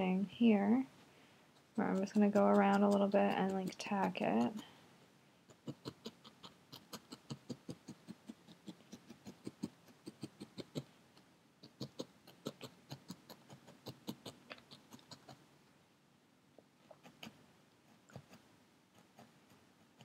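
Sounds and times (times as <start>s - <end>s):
felting needle poking into foam: 1.6s - 4.6s, 5.5s - 15.4s.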